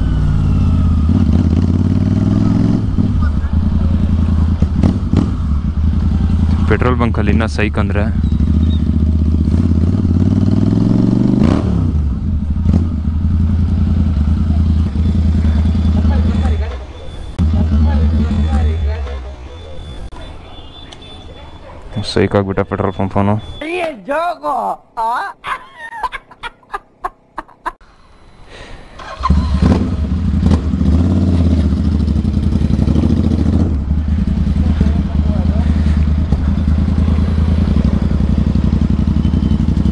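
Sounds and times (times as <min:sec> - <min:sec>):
exhaust cracks: 0:00.0 - 0:10.7
loud motorcycle engine: 0:00.0 - 0:20.0, 0:29.0 - 0:39.9.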